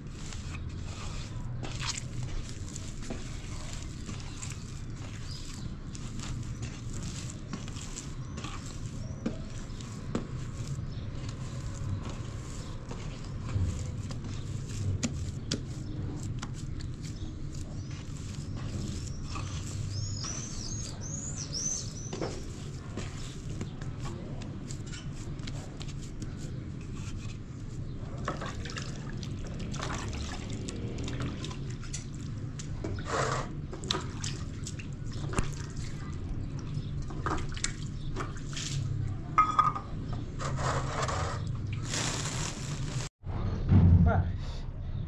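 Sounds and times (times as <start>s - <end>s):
hands kneading dough: 0.0s - 43.2s
water splashing in basin: 28.3s - 32.2s.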